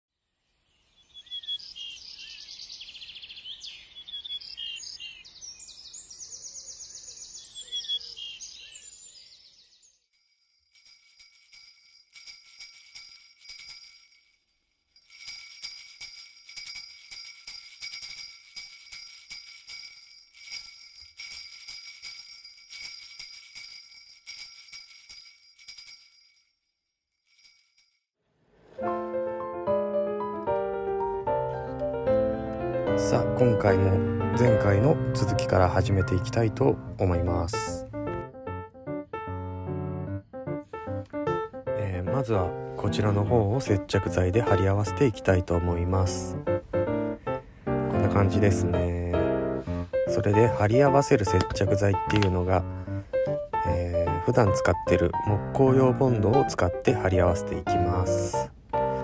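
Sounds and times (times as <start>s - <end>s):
jingle bells shaken: 10.2s - 28.1s, 50.0s - 52.6s.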